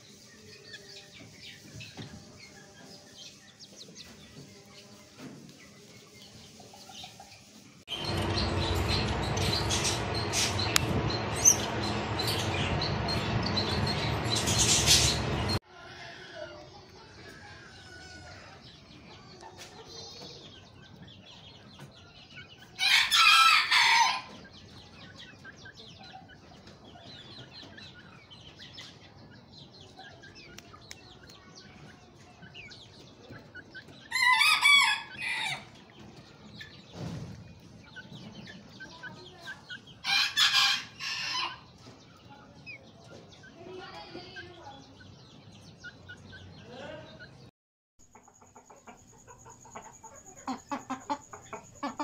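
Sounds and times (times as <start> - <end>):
chickens clucking and chirping: 0.0 - 52.0
rooster crowing: 22.8 - 24.3, 34.1 - 35.7.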